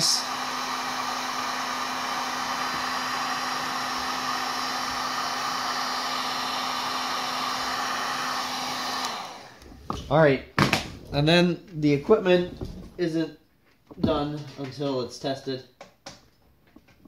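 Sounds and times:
heat gun blowing hot air: 0:00.0 - 0:10.0.

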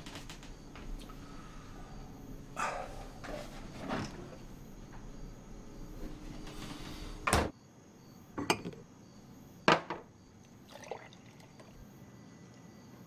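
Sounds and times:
glass or crockery clinking: 0:08.4 - 0:08.8.

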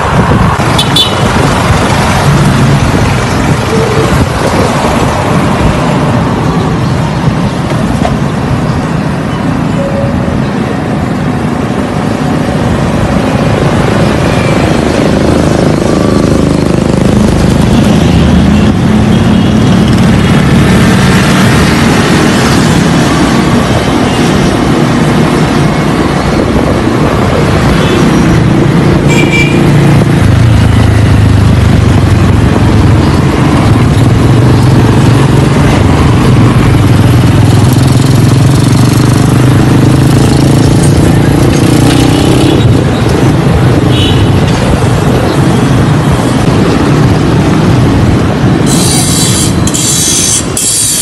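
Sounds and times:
road and wind noise: 0:00.0 - 0:51.0.

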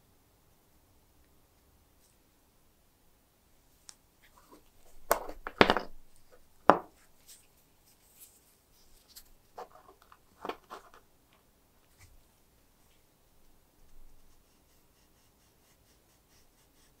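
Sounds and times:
glass prisms knocking on wood: 0:06.7 - 0:06.9.

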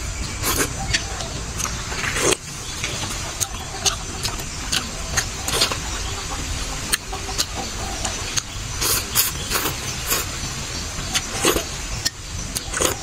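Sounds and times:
slurping noodles: 0:00.4 - 0:00.7, 0:08.8 - 0:10.3.

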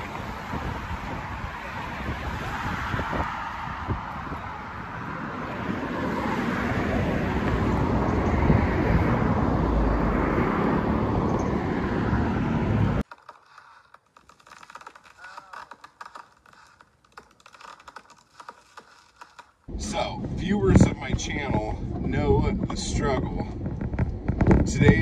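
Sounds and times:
cars passing: 0:00.0 - 0:13.0
low traffic rumble: 0:00.0 - 0:25.0.

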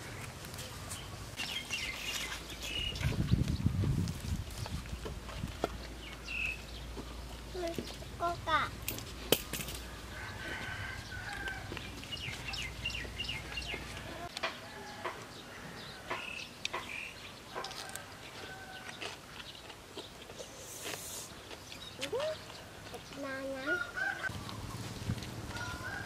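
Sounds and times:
rooster crowing: 0:09.9 - 0:11.8, 0:23.8 - 0:24.3, 0:25.5 - 0:26.0.

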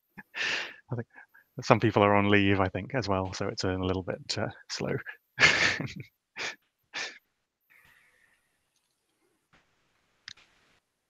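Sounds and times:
man laughing breathily: 0:05.4 - 0:07.2.

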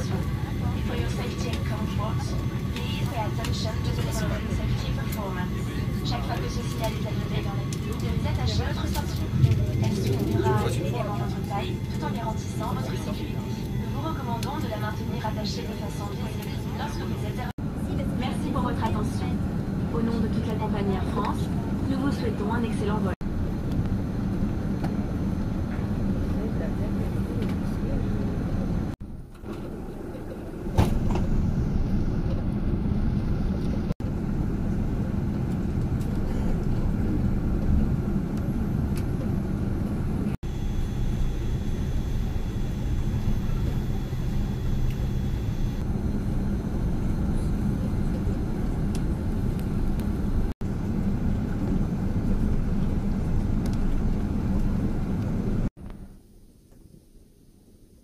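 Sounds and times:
jet engine and airflow rumble: 0:00.0 - 0:56.4.

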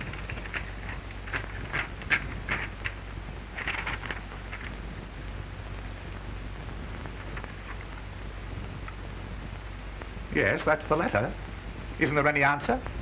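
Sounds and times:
typewriter clacks: 0:00.0 - 0:03.0, 0:03.6 - 0:04.7
soundtrack hiss and hum: 0:00.0 - 0:13.0.

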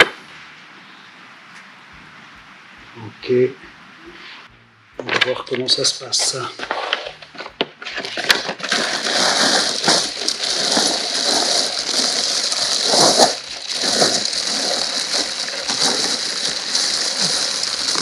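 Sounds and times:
plastic bag crinkling: 0:06.2 - 0:18.0.

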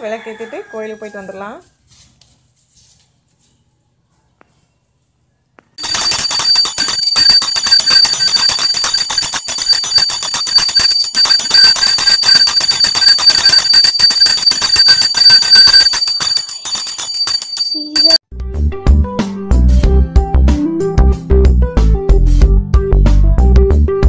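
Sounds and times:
hand bell rung rapidly: 0:05.8 - 0:18.2.

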